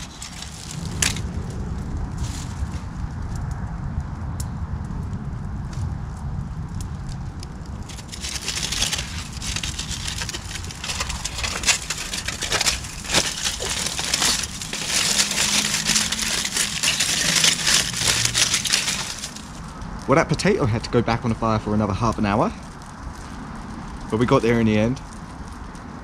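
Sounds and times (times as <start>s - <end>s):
aluminium foil crinkling: 0.0s - 1.3s, 7.7s - 19.8s.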